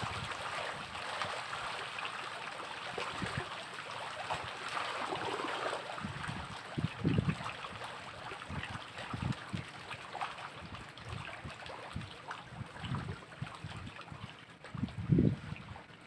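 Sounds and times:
wind rumbling on microphone: 0.0s - 1.6s, 2.8s - 3.6s, 4.3s - 10.0s, 10.6s - 16.0s
water splashing and lapping: 0.0s - 16.0s.

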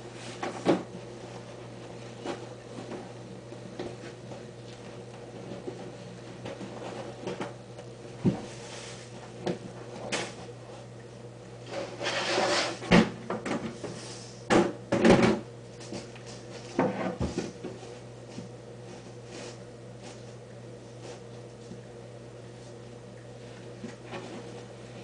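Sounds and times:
low steady hum: 0.0s - 25.0s
rustling noise: 8.3s - 10.9s.

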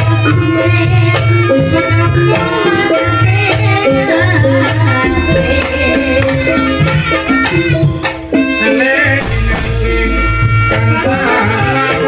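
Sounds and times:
gamelan music: 2.2s - 11.1s.

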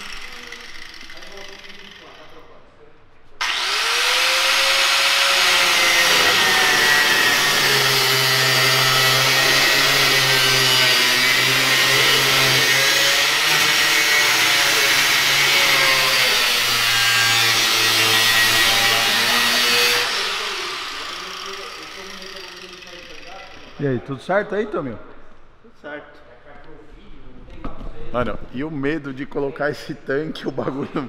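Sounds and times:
angle grinder cutting metal: 0.0s - 2.3s, 3.4s - 23.9s.

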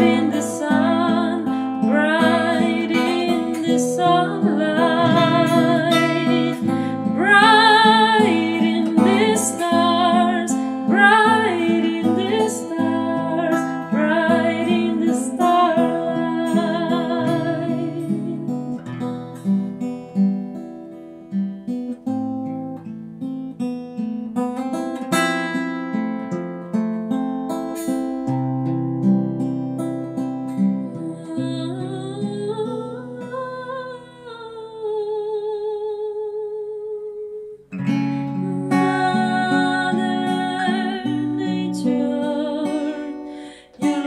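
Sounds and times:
woman singing with vibrato: 0.0s - 18.8s, 30.8s - 37.6s, 38.4s - 44.0s
plucked acoustic guitar: 0.0s - 35.0s, 37.2s - 44.0s.

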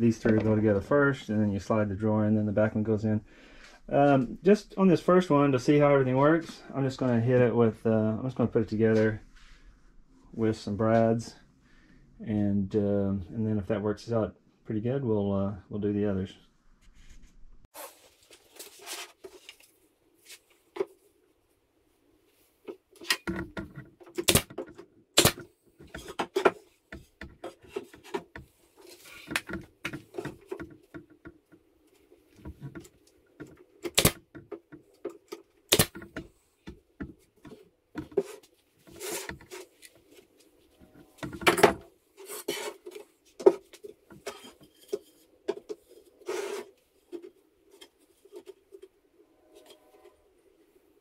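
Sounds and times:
brad nailer shots: 24.1s - 24.6s, 25.2s - 25.5s, 33.9s - 34.2s, 35.7s - 36.0s.

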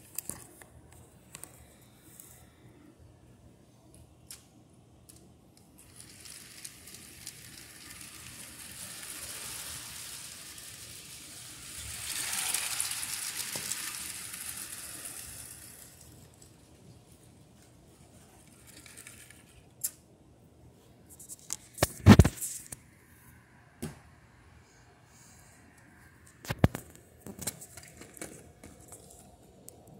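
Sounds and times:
toy train motor whirring rattle: 5.6s - 17.4s, 18.2s - 20.0s
plastic pieces knocking: 5.8s - 16.4s.

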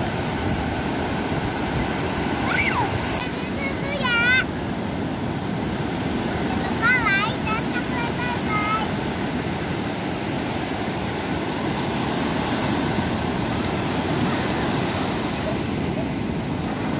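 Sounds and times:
ocean surf breaking on beach: 0.0s - 16.9s
child's high-pitched cry: 2.4s - 4.4s.

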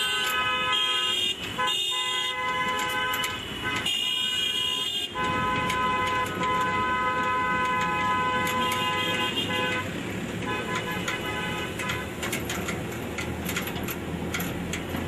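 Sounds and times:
car horns honking: 0.0s - 12.7s.

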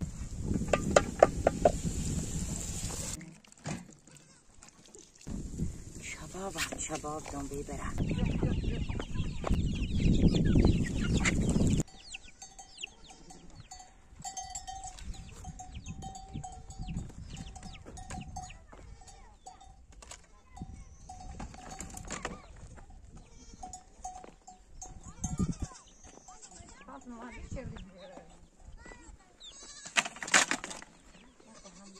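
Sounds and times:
farm animals: 3.1s - 5.2s, 6.0s - 31.9s
birds chirping: 6.1s - 19.8s, 23.2s - 29.9s, 30.7s - 31.9s
livestock bell clinking: 11.8s - 27.7s.

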